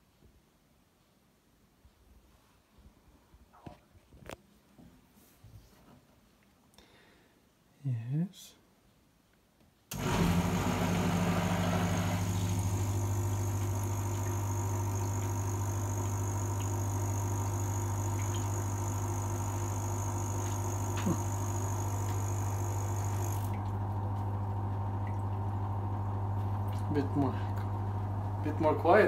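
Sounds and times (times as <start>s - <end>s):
brewing machine electric hum: 9.9s - 29.0s
pump circulating water: 9.9s - 29.0s
high whine: 12.1s - 24.7s.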